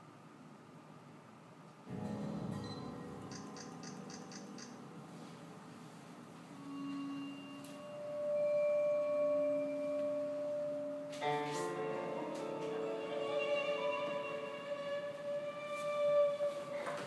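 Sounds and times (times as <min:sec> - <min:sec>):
long held pure notes: 0:01.9 - 0:17.0
strings playing a chord: 0:04.8 - 0:17.0.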